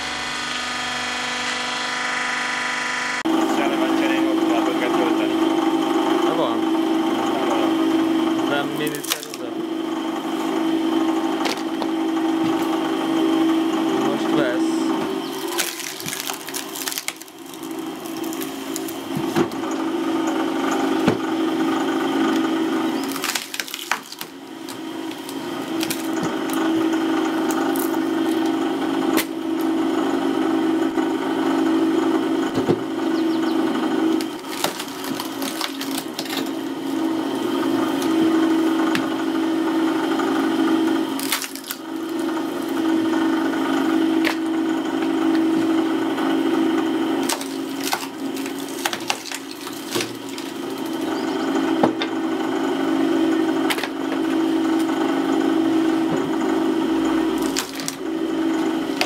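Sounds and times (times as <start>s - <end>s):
log splitter motor humming: 0.0s - 59.0s
wood splitting with cracks: 8.5s - 9.5s, 11.4s - 12.8s, 15.0s - 21.4s, 22.2s - 29.8s, 34.0s - 39.2s, 40.7s - 52.2s, 53.4s - 55.0s, 56.0s - 59.0s.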